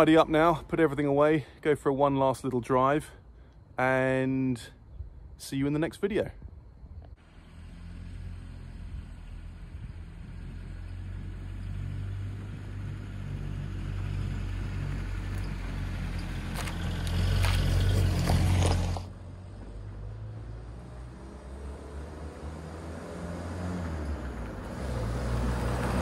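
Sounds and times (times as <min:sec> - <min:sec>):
car engine driving past: 0:07.2 - 0:26.0
tyres crackling over gritty track: 0:09.0 - 0:21.0.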